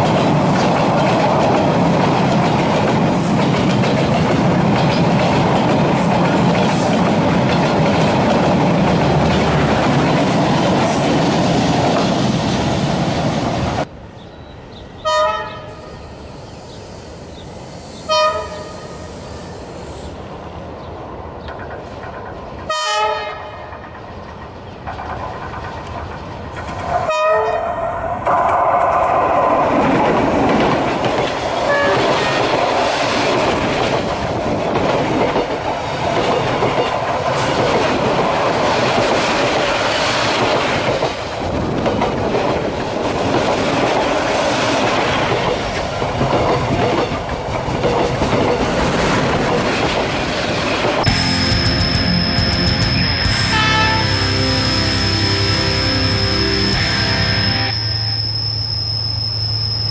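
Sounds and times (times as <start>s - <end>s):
train wheels rumbling on rails: 0.0s - 13.9s, 15.6s - 57.8s
diesel locomotive horn blasts: 15.0s - 15.8s, 18.1s - 19.0s, 22.7s - 23.6s, 27.1s - 27.7s, 31.7s - 32.0s, 53.3s - 57.6s.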